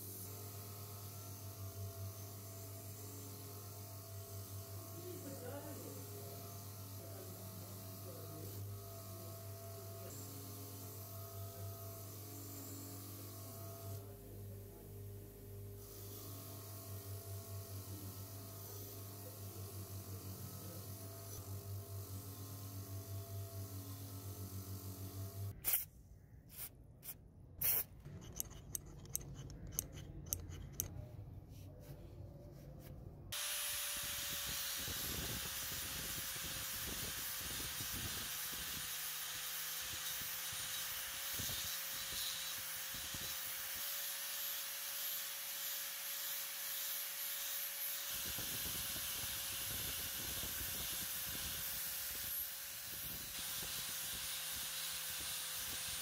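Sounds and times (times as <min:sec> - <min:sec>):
bench grinder wire wheel brushing: 0:27.6 - 0:30.9
angle grinder grinding steel: 0:28.1 - 0:30.9, 0:33.4 - 0:56.0.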